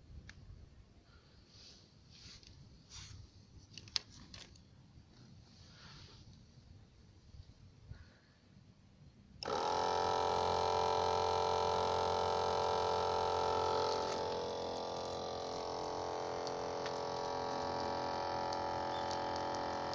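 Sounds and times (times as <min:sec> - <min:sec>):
electric pump humming: 0:09.4 - 0:19.9
water spraying: 0:09.4 - 0:19.9.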